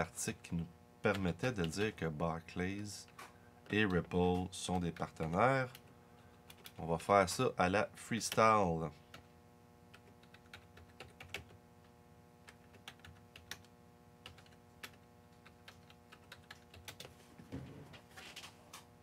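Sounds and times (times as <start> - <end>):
low steady hum: 0.0 - 19.0
keyboard typing: 3.7 - 6.8, 9.9 - 11.6, 12.4 - 17.1.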